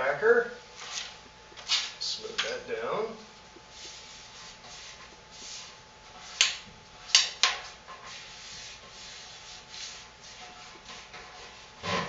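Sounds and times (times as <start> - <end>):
hand rubbing sticker on metal: 3.7 - 11.7.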